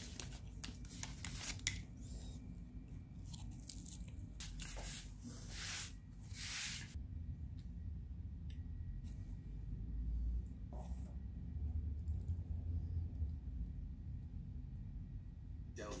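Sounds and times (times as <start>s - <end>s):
paper swishing across wooden table: 4.4s - 7.0s.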